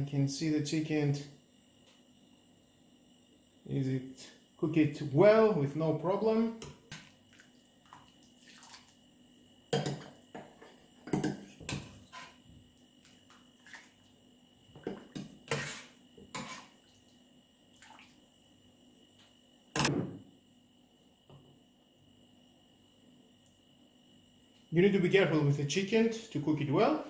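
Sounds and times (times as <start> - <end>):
liquid splashing: 7.3 - 9.0
spoon scraping metal jug: 11.9 - 12.4, 15.5 - 16.8.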